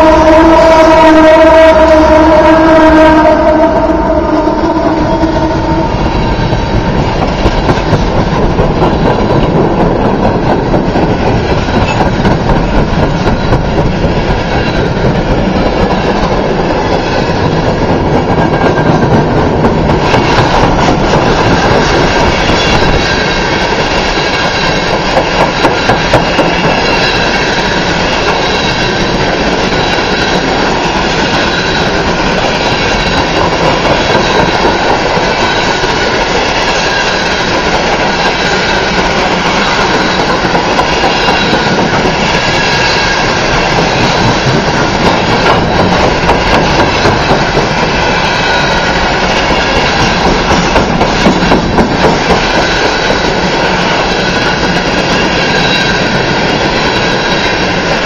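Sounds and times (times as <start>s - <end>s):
locomotive horn: 0.0s - 6.8s
steel wheel squeal: 0.0s - 58.0s
train wheels clattering over rail joints: 5.3s - 58.0s.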